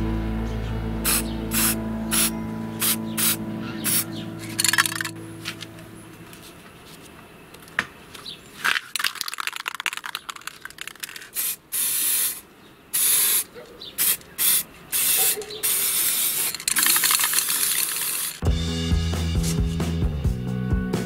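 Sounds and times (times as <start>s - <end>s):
spray paint can hissing: 1.0s - 5.1s, 9.0s - 18.4s.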